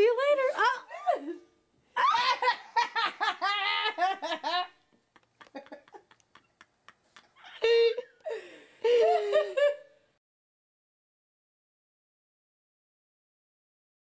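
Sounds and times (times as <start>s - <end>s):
person laughing: 2.0s - 9.9s.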